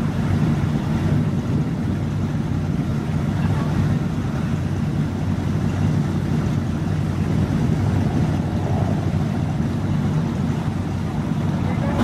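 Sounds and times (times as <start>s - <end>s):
car engine running at low speed: 0.0s - 12.0s.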